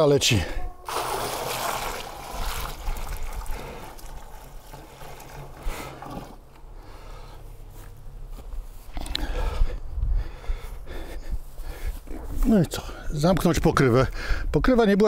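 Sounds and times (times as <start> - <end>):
water pouring from a bucket: 0.9 - 6.5.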